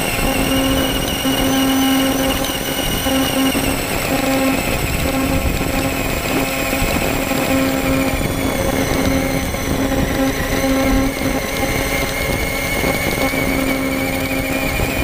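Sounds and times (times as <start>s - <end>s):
rc truck motor hum: 0.0s - 15.0s.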